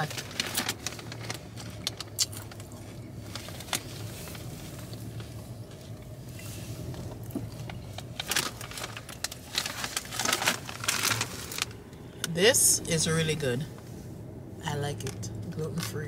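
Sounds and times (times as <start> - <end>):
sharp clicks and crackles: 0.0 - 5.3
car cabin road hum: 0.0 - 16.0.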